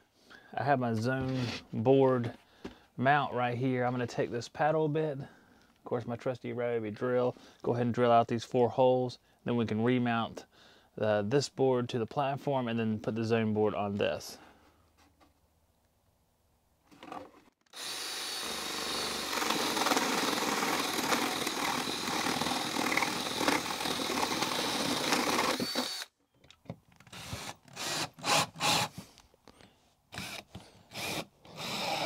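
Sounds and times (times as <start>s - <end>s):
cordless drill boring through board: 17.1s - 26.1s, 27.0s - 28.9s, 30.1s - 32.0s.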